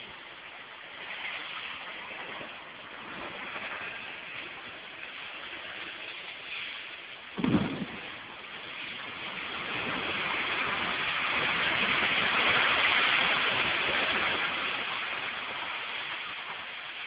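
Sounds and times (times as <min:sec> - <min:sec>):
deep thump: 0:07.4 - 0:08.1.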